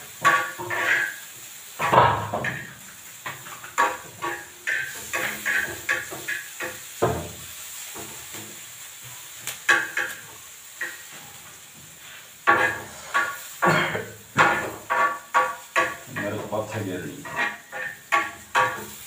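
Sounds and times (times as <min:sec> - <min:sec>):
gas stove hiss: 0:00.0 - 0:19.0
metal spoon scraping frying pan: 0:00.2 - 0:02.7, 0:03.3 - 0:06.9, 0:12.5 - 0:19.0.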